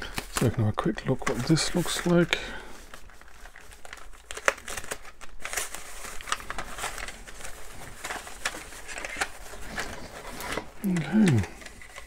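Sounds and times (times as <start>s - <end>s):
foam wrap rustling and crinkling: 0.0s - 12.0s.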